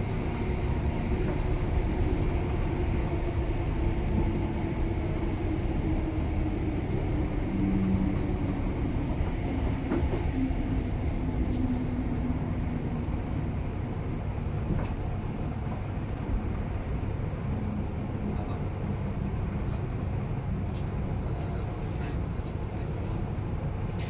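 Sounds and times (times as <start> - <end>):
train wheels rumbling on track: 0.0 - 24.0.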